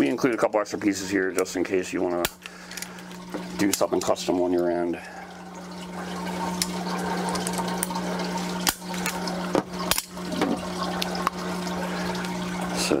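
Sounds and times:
pump humming: 0:00.0 - 0:13.0
water running and splashing: 0:00.0 - 0:13.0.

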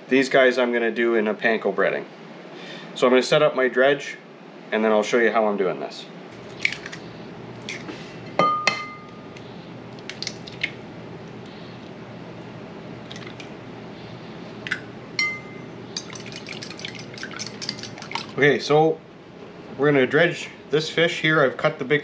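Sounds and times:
eggs cracked into bowl: 0:06.6 - 0:07.0, 0:10.0 - 0:10.8
bowls and utensils clinking: 0:14.7 - 0:18.4
fork beating eggs in bowl: 0:15.9 - 0:18.4.

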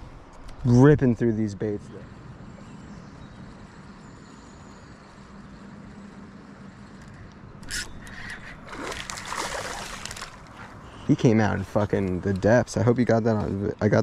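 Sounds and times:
steady low hum: 0:00.0 - 0:14.0
water splashing: 0:08.6 - 0:10.8.

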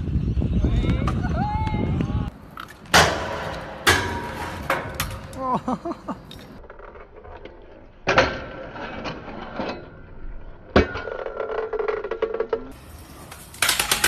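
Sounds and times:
scooter scraping and rolling: 0:02.3 - 0:05.4, 0:06.1 - 0:14.0
scooter clacking on hard ground: 0:10.8 - 0:14.0.

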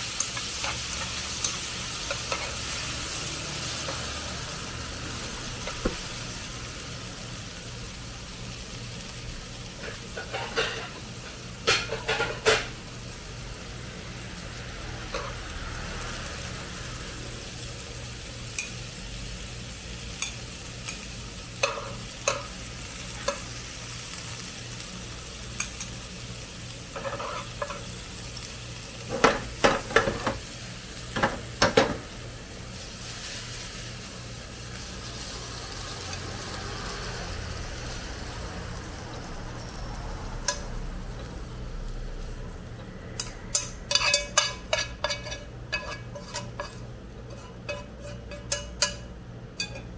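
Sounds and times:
food sizzling in a wok: 0:00.0 - 0:49.9
utensils knocking and scraping pan: 0:09.8 - 0:12.7, 0:27.0 - 0:27.9, 0:29.1 - 0:30.4, 0:43.2 - 0:49.9.

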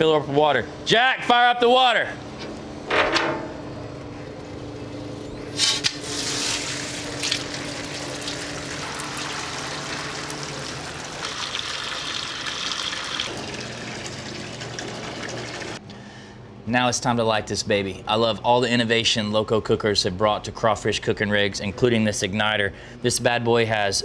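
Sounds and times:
hose water splashing into metal basket: 0:05.6 - 0:15.8.

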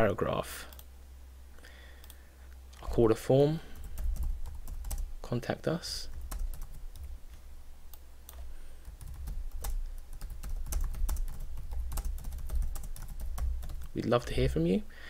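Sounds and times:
faint low hum: 0:00.0 - 0:15.0
computer keyboard typing: 0:03.7 - 0:05.1, 0:06.0 - 0:07.2, 0:08.3 - 0:14.0.

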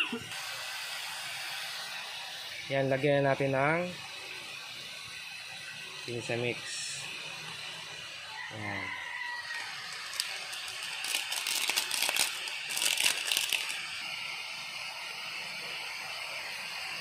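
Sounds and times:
vegetables sizzling in hot oil: 0:00.0 - 0:17.0
foil sachet crinkling: 0:09.4 - 0:13.8.

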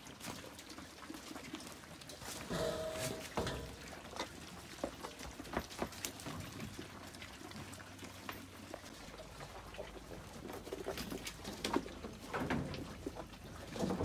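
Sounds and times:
goats slurping and munching: 0:00.0 - 0:14.0.

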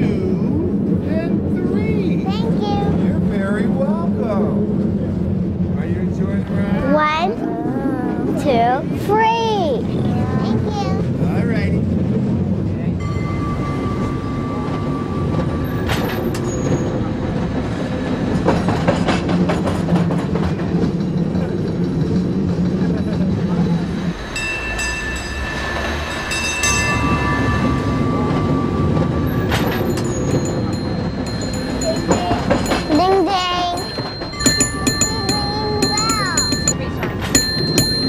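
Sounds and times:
cable car rumble and clatter: 0:00.0 - 0:38.0
high ringing bell tones: 0:13.0 - 0:17.0, 0:24.3 - 0:38.0.

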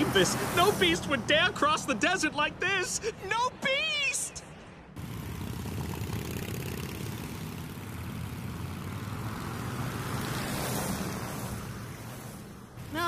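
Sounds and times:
motorbike engine rumble: 0:05.0 - 0:12.0.

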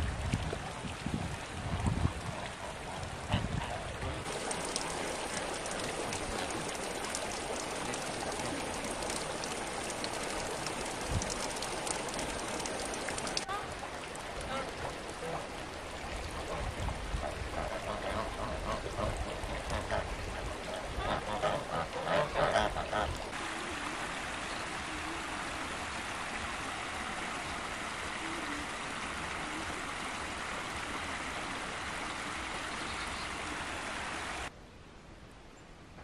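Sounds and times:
stream water rushing: 0:00.0 - 0:34.5
geese honking: 0:21.0 - 0:23.1.

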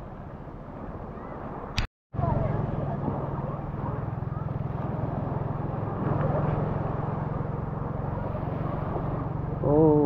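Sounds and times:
engine droning: 0:02.2 - 0:10.0.

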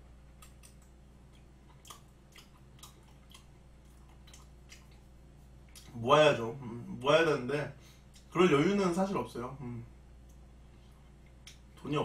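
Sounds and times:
low steady hum: 0:00.0 - 0:12.0
person chewing: 0:00.2 - 0:06.0, 0:10.2 - 0:11.8.

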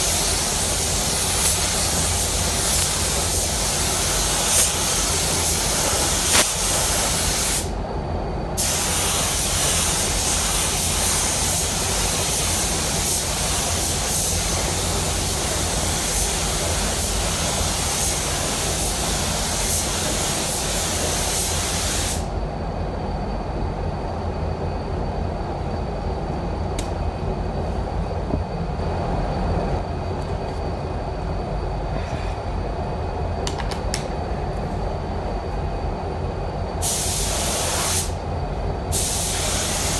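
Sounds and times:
spray gun hissing: 0:00.0 - 0:07.7, 0:08.6 - 0:22.3, 0:36.8 - 0:38.2, 0:38.9 - 0:39.9
ventilation rumble: 0:00.0 - 0:39.9.

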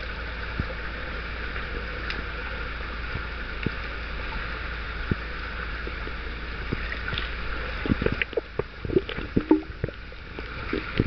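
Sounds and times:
underwater hiss and rumble: 0:00.0 - 0:11.0
underwater clicks and pops: 0:07.9 - 0:10.0.

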